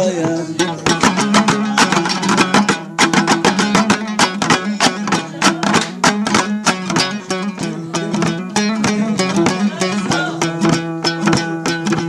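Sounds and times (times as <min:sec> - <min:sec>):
plucked strings strummed fast: 0:00.0 - 0:12.0.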